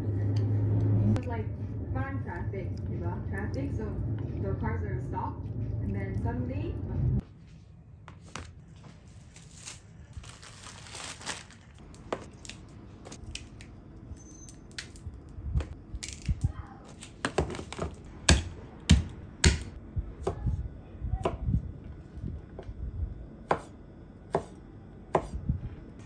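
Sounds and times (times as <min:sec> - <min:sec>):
crinkling and rustling: 0:07.4 - 0:13.2.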